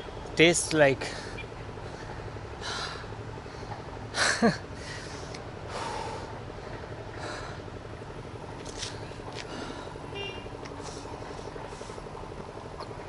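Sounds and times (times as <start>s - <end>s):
man breathing hard: 1.0s - 7.7s, 9.4s - 10.1s.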